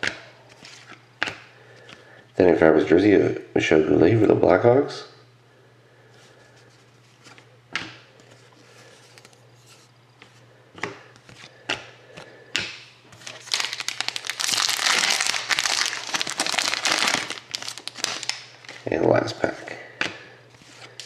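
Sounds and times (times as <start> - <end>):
foil wrapper crinkling: 13.1 - 18.9.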